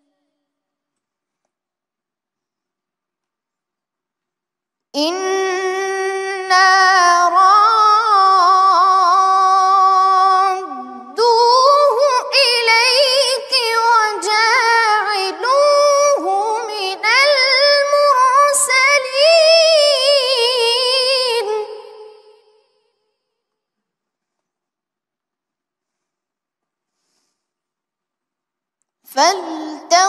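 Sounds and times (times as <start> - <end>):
boy chanting melodically: 5.0 - 22.5, 29.1 - 30.0.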